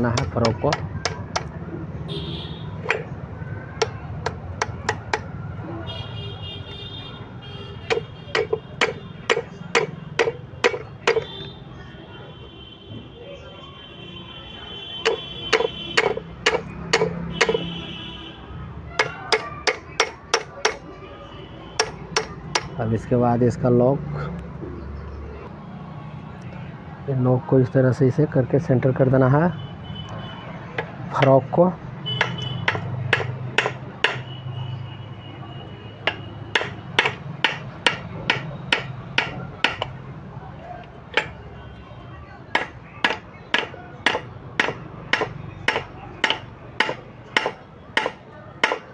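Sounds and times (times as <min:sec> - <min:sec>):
hammer striking metal: 0:00.0 - 0:01.5, 0:02.8 - 0:03.1, 0:03.8 - 0:05.3, 0:07.8 - 0:11.3, 0:15.0 - 0:17.7, 0:19.0 - 0:20.9, 0:21.8 - 0:22.8, 0:32.2 - 0:34.3, 0:36.0 - 0:39.9, 0:41.1 - 0:41.4, 0:42.5 - 0:48.9
metal-on-metal taps: 0:00.0 - 0:01.6, 0:02.8 - 0:03.1, 0:03.8 - 0:05.3, 0:07.9 - 0:11.3, 0:15.0 - 0:17.7, 0:21.8 - 0:22.8, 0:32.2 - 0:34.2, 0:36.0 - 0:40.0.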